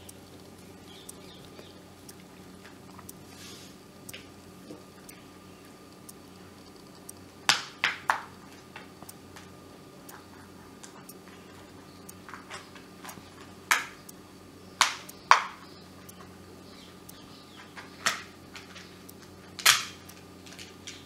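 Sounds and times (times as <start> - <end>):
plastic clicks and snaps: 12.1 - 14.2, 14.8 - 16.3, 17.1 - 21.0.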